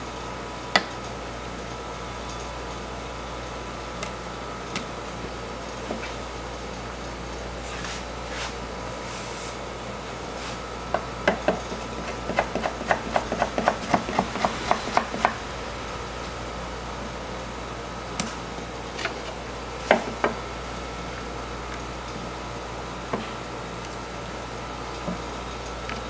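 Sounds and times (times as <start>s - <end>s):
steady hum: 0.0s - 26.0s
knife chopping on cutting board: 11.3s - 15.4s.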